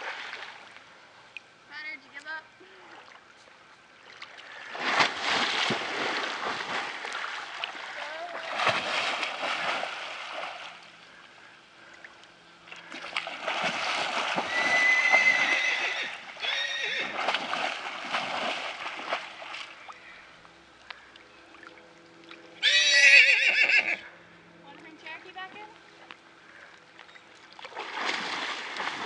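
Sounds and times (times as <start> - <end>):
water splashing around horse: 0.0 - 0.8, 4.0 - 11.0, 12.7 - 20.1, 27.4 - 29.0
horse whinnying: 14.4 - 17.2, 22.6 - 24.1.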